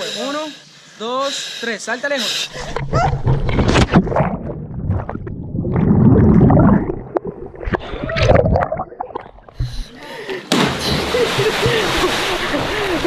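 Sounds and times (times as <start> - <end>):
underwater rush and gurgling: 2.6 - 9.9
water splashing: 2.6 - 13.0.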